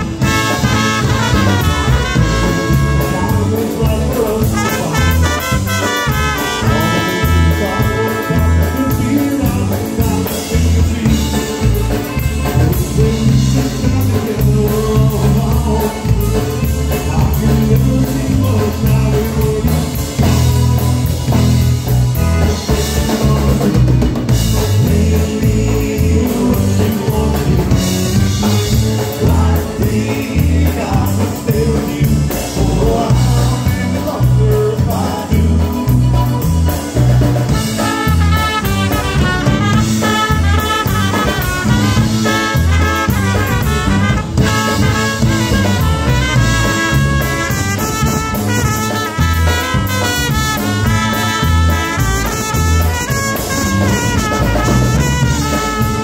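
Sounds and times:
button accordion: 0:00.0 - 0:03.7, 0:04.5 - 0:12.8, 0:37.5 - 0:56.0
trumpets: 0:00.0 - 0:03.8, 0:04.4 - 0:09.6, 0:37.5 - 0:56.0
drum kit: 0:00.0 - 0:56.0
electric bass guitar: 0:00.0 - 0:56.0.

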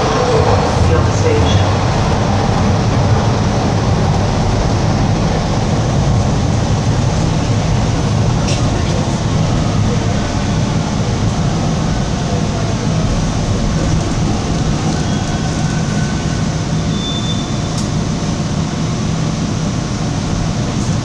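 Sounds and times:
subway train rumble: 0:00.0 - 0:21.0
wheels squealing on rails: 0:13.8 - 0:18.1.

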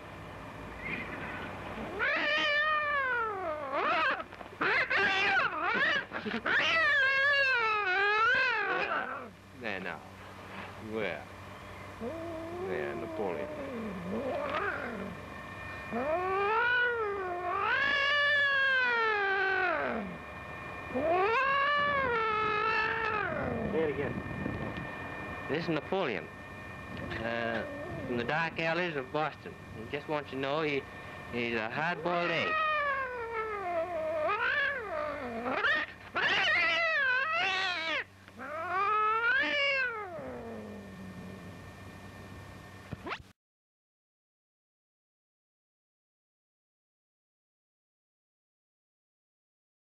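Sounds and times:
cat yowling angrily: 0:01.9 - 0:09.4, 0:12.0 - 0:15.2, 0:15.9 - 0:20.2, 0:20.9 - 0:23.9, 0:27.3 - 0:28.4, 0:31.4 - 0:41.2.

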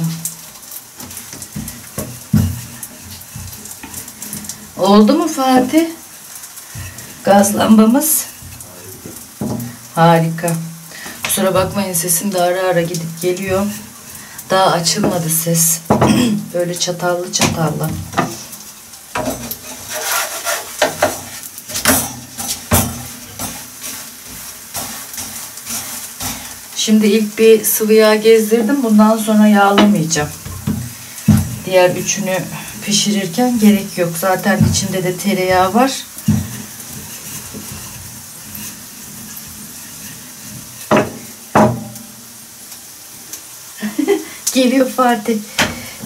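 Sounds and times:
flatbread sizzling in a pan: 0:00.0 - 0:46.0
utensil knocking and scraping pan: 0:01.0 - 0:04.5, 0:08.4 - 0:09.8, 0:12.9 - 0:14.1, 0:14.8 - 0:16.3, 0:17.3 - 0:26.8, 0:29.6 - 0:42.2
rolling pin working dough: 0:19.2 - 0:26.5, 0:32.8 - 0:41.8.

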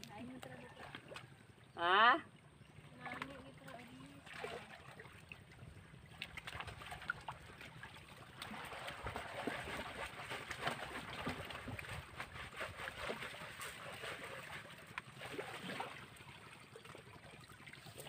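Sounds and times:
small splashes and knocks: 0:00.0 - 0:01.7, 0:02.8 - 0:18.0
stream water trickling: 0:00.0 - 0:18.0.

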